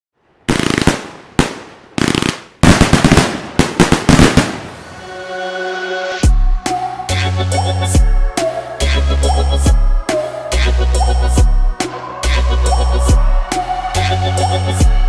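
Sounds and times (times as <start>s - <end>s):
fireworks bangs and crackling: 0.5s - 5.0s
electronic music: 5.0s - 15.0s.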